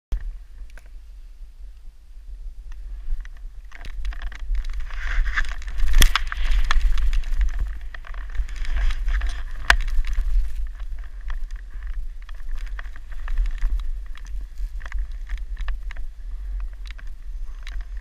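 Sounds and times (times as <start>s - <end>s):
wind rumbling on microphone: 0.1s - 18.0s
scattered clicks: 2.7s - 18.0s
snowboard scraping over snow: 4.7s - 18.0s.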